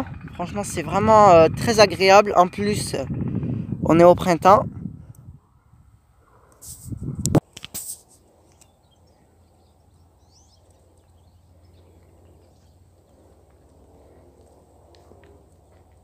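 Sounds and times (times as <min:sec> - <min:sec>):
bird chirps: 0:08.6 - 0:12.9.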